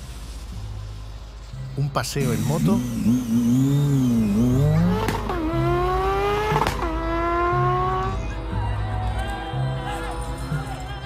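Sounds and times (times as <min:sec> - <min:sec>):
motorcycle engine revving: 0:02.2 - 0:08.4.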